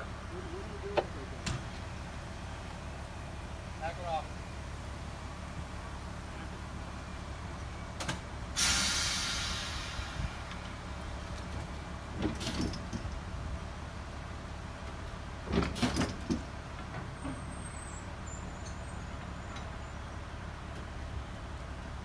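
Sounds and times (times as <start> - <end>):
low engine hum: 0.0 - 8.6.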